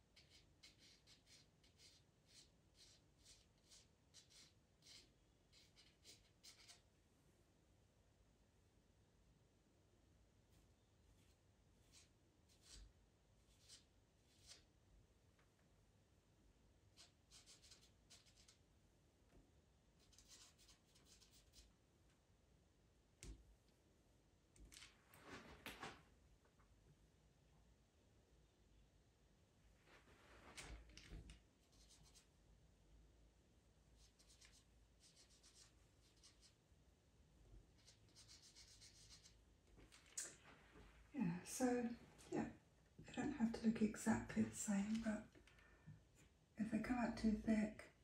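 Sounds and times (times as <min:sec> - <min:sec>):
pencil scratching on paper: 0:00.1 - 0:06.9, 0:10.5 - 0:14.7, 0:16.9 - 0:18.6, 0:20.0 - 0:21.7, 0:31.6 - 0:32.3, 0:34.0 - 0:36.6, 0:37.7 - 0:39.4.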